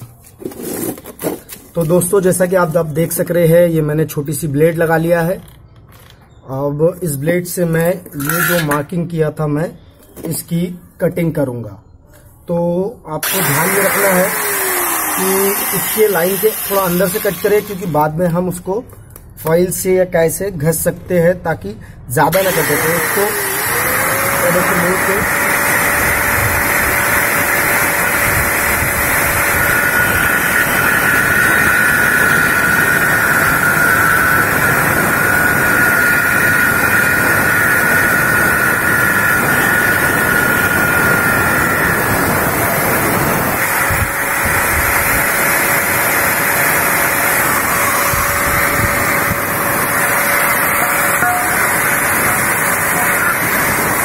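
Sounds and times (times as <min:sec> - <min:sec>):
angle grinder cutting steel: 0:07.8 - 0:08.8, 0:13.2 - 0:18.4, 0:22.3 - 0:54.0.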